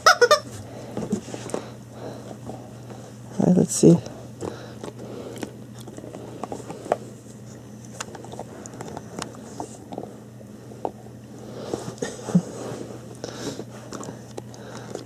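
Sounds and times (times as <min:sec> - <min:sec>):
dog gnawing rubber toy: 0:07.9 - 0:10.1.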